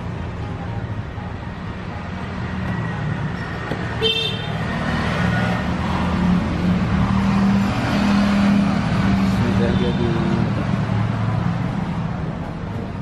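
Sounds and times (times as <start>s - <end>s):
road traffic engines: 0.0s - 13.0s
car horn toot: 4.0s - 4.6s.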